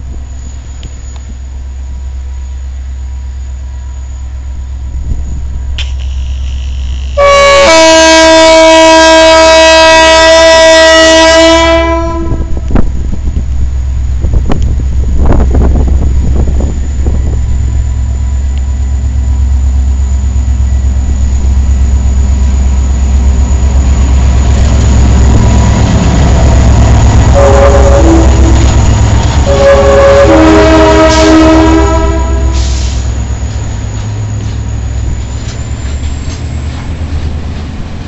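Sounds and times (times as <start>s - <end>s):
train rumbling past: 0.0s - 38.0s
locomotive air horn: 5.8s - 12.7s, 27.2s - 28.8s, 29.4s - 33.0s.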